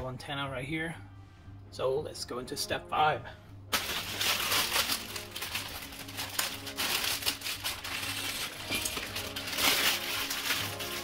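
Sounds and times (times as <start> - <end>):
plastic bag crinkling: 3.7 - 11.0.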